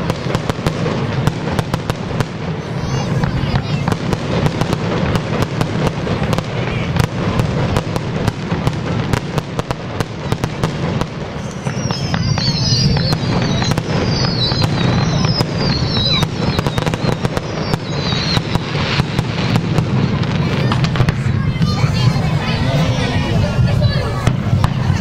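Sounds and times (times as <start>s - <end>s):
fireworks bangs and crackles: 0.0s - 25.0s
high falling whistles: 11.4s - 19.2s.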